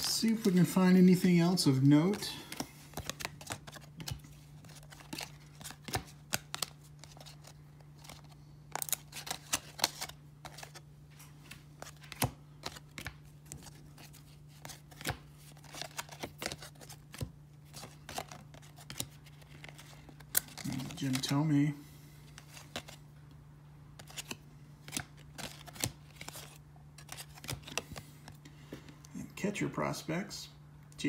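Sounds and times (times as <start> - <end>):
cards snapping and rustling: 1.8 - 21.4, 22.3 - 23.0, 24.0 - 28.4.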